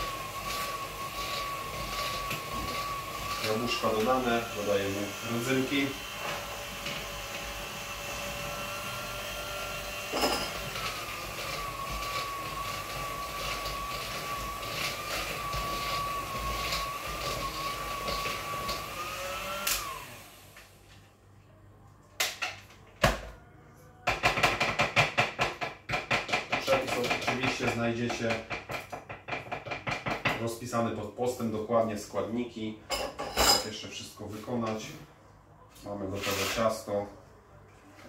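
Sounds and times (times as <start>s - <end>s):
electric hand mixer whining: 0.0s - 20.8s
beaters clattering in ceramic bowl: 10.2s - 10.7s.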